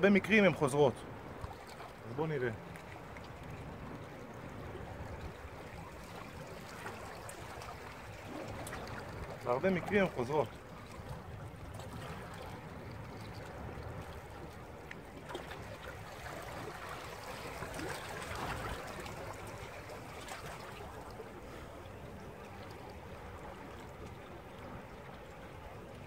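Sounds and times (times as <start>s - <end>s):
sea water washing: 0.0s - 26.0s.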